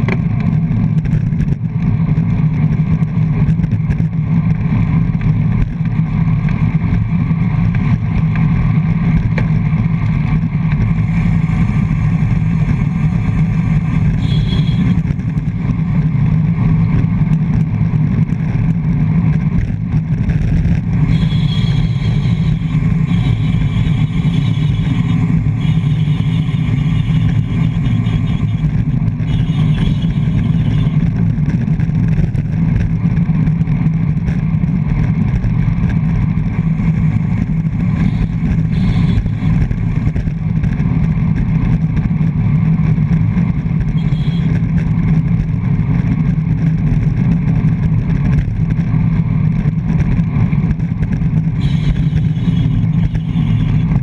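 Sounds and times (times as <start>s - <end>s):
tyre and road rumble: 0.0s - 54.0s
wind rush and buffeting: 0.0s - 54.0s.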